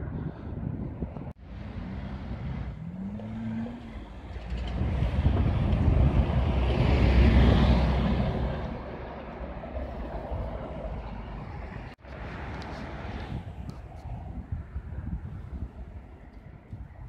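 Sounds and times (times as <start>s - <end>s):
street traffic: 0.0s - 17.0s
bus driving past: 1.4s - 13.6s.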